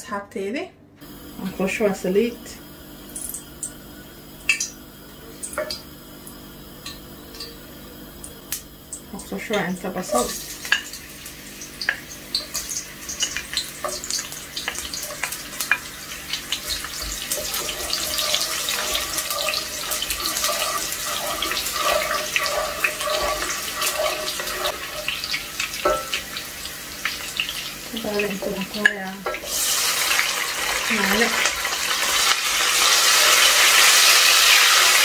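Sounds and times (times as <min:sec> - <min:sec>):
onions sizzling in hot oil: 0:01.0 - 0:35.0
wooden spatula stirring: 0:16.7 - 0:26.1.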